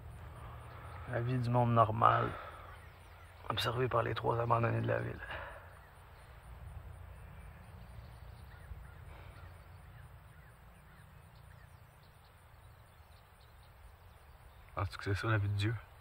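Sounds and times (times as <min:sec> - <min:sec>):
low steady rumble: 0:00.0 - 0:05.2
distant bird calls: 0:00.0 - 0:16.0.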